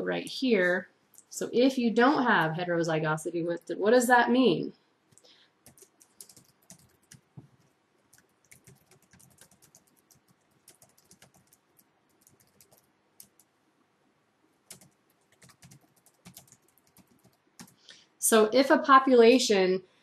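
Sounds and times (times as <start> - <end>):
typing on computer keyboard: 5.1 - 7.3, 8.1 - 13.5, 14.7 - 17.8.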